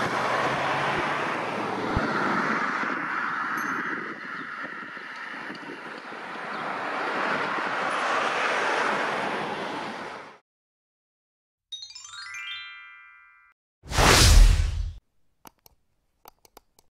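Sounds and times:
descending chime jingle: 11.7 - 13.6.

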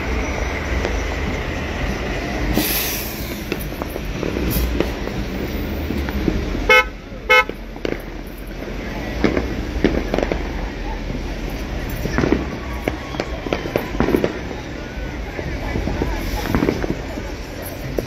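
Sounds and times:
traffic rumble: 0.0 - 18.0
brief hiss: 2.5 - 3.6
vehicle horn toots: 6.7 - 7.6.

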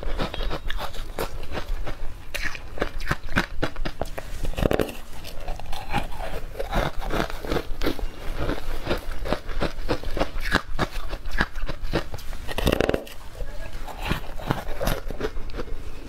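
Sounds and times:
crunchy ice chewing: 0.0 - 16.0.

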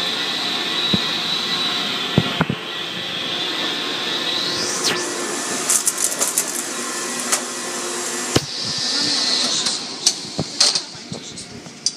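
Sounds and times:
car wash machinery and water spray: 0.0 - 11.9
sharp knocks: 8.4 - 8.6.

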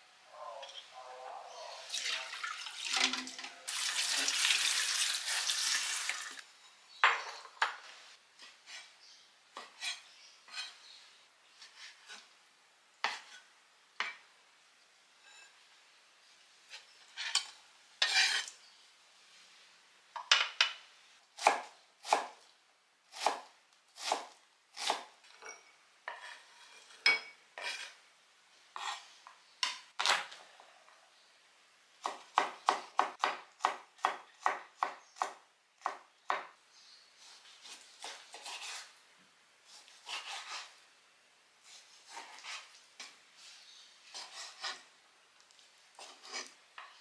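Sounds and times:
knife chopping on wooden board: 21.4 - 22.3, 23.2 - 23.4, 32.0 - 36.5.

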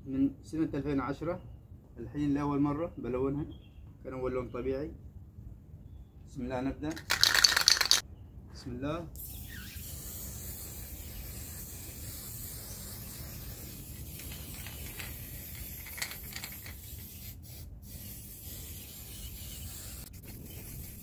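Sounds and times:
spray paint can hissing: 7.0 - 8.0, 9.2 - 21.0.

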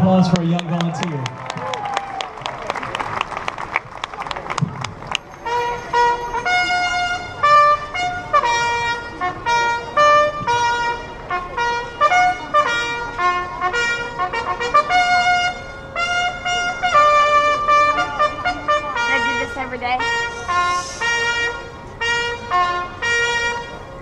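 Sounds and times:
trumpet: 5.3 - 24.0
brass band playing slow melody: 5.4 - 24.0.

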